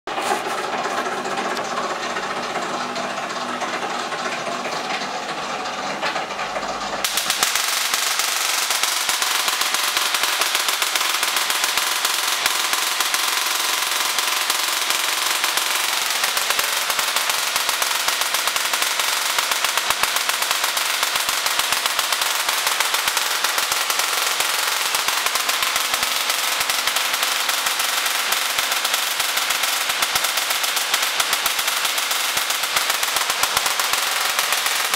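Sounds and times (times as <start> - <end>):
rapid crackling buzz of sparks: 7.0 - 34.9.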